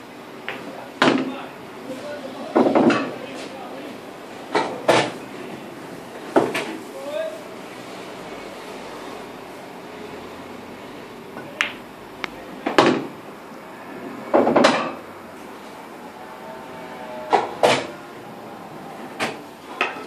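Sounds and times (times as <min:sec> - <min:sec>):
pool balls clacking: 0:00.4 - 0:01.4, 0:02.5 - 0:03.4, 0:06.2 - 0:06.8, 0:11.3 - 0:11.9, 0:12.6 - 0:13.2, 0:14.3 - 0:15.1, 0:17.3 - 0:18.0, 0:19.0 - 0:20.0
cue striking ball: 0:11.4 - 0:11.8, 0:14.3 - 0:15.0.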